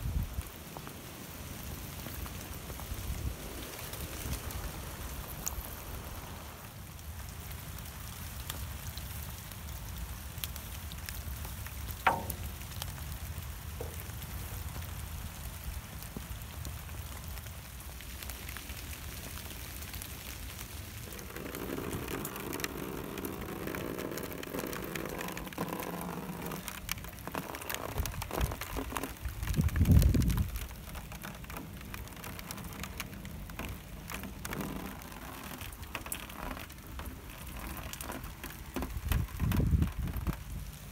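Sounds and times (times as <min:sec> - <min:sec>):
rain falling on pond: 0:00.0 - 0:40.9.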